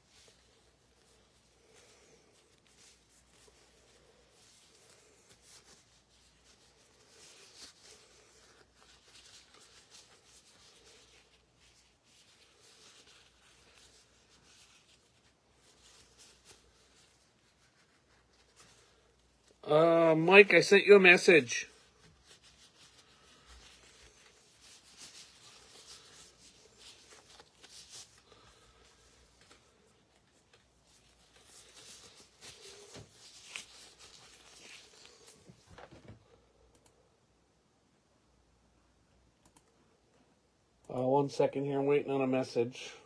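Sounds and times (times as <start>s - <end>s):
soft rustles: 0.0s - 19.6s, 21.3s - 36.6s
faint taps and rustles: 35.3s - 36.4s.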